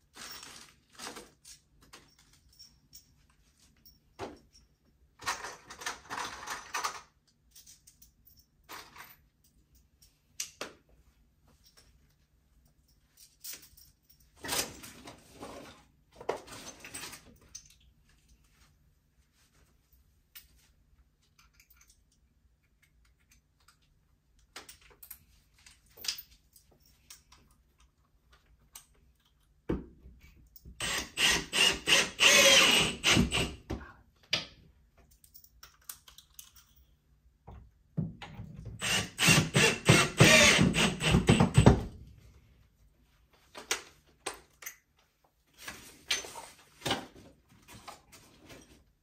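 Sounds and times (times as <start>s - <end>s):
tool clicking and rattling: 38.8s - 41.8s.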